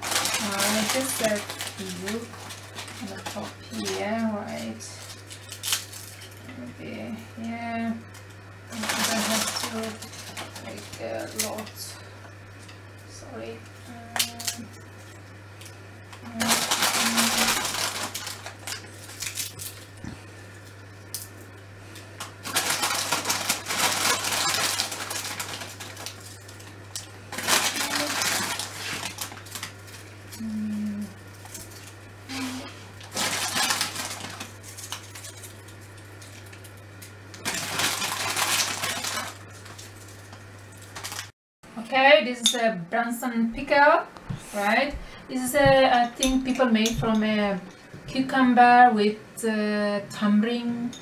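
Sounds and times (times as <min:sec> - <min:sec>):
crisp packet rustling: 0:00.0 - 0:06.4, 0:08.7 - 0:11.6, 0:16.3 - 0:20.0, 0:22.2 - 0:30.1, 0:33.0 - 0:41.3
crisps crunching: 0:00.0 - 0:06.5, 0:08.3 - 0:11.7, 0:14.2 - 0:21.6, 0:22.2 - 0:30.5, 0:31.2 - 0:41.3
low steady hum: 0:00.0 - 0:51.0.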